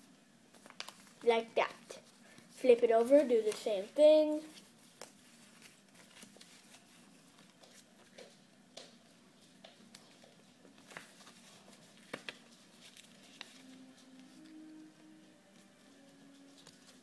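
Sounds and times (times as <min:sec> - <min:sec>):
paper rustling and folding: 0:00.5 - 0:08.4, 0:09.5 - 0:17.0.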